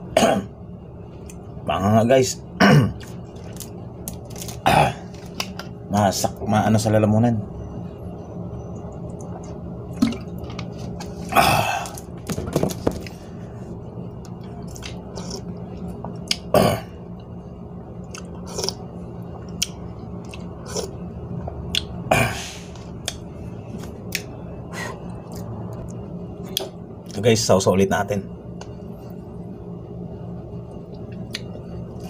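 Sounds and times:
steady low hum: 0.0s - 32.0s
man chewing noodles: 14.2s - 17.3s, 18.0s - 22.0s
wet mouth clicks and smacks: 31.1s - 31.5s.

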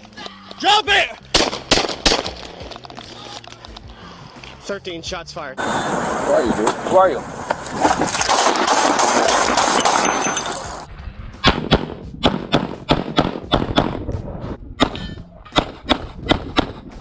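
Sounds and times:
handgun shots: 1.3s - 2.5s, 8.2s - 10.4s.

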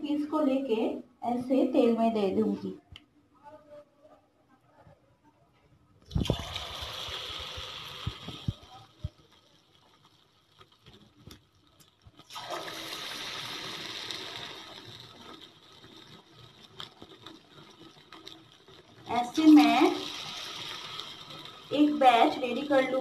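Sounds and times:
chicken sizzling in hot oil: 6.1s - 23.0s.

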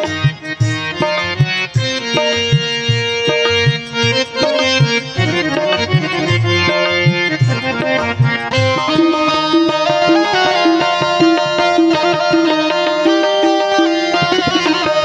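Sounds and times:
harmonium melody: 0.0s - 15.0s.

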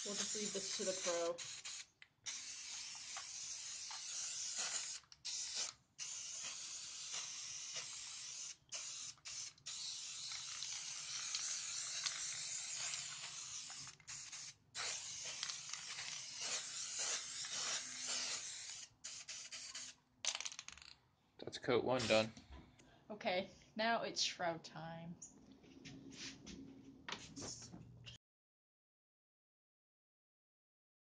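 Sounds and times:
aerosol can spraying: 0.0s - 20.0s, 22.0s - 22.2s.

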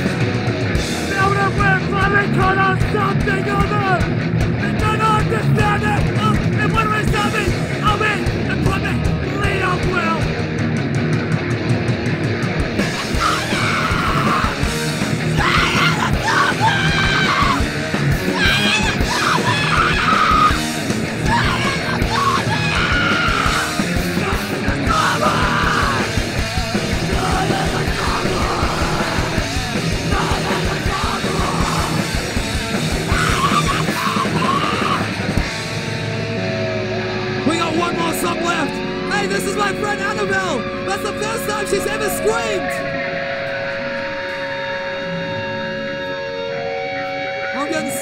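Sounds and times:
punk rock band playing: 0.0s - 48.0s
screamed vocals: 12.9s - 14.7s, 15.3s - 17.6s, 18.3s - 20.6s, 21.2s - 26.2s, 27.0s - 32.2s, 33.0s - 35.2s.

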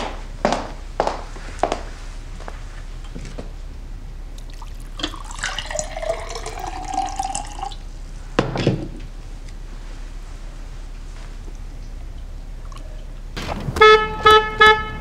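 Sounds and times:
water pouring into a glass: 4.4s - 7.8s.

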